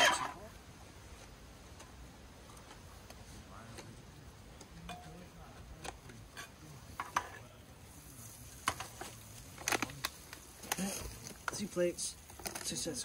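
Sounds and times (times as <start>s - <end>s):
utensil scraping a pan: 0.0s - 0.4s, 6.2s - 7.4s
fat sizzling in a frying pan: 6.7s - 13.0s.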